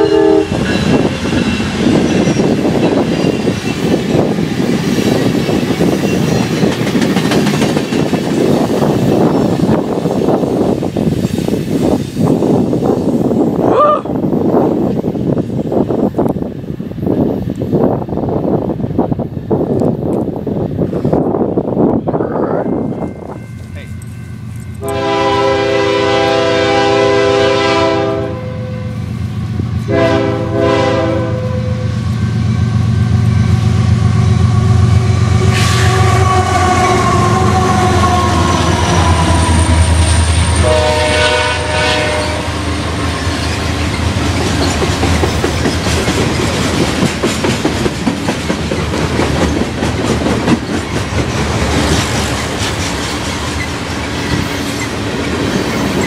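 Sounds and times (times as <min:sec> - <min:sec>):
train air horn blasts: 0:00.0 - 0:01.4, 0:24.8 - 0:29.1, 0:29.8 - 0:32.1, 0:34.3 - 0:42.8
train wheels clickety-clack: 0:00.0 - 0:13.2, 0:42.7 - 0:56.0
locomotive engines rumbling: 0:00.0 - 0:56.0.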